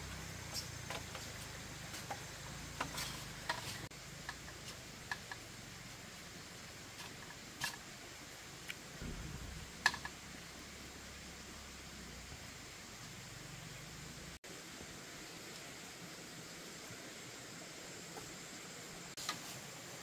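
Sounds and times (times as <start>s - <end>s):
faint steady hiss: 0.0s - 20.0s
bamboo poles clicking and knocking: 0.1s - 5.6s, 6.9s - 8.0s, 8.6s - 10.2s.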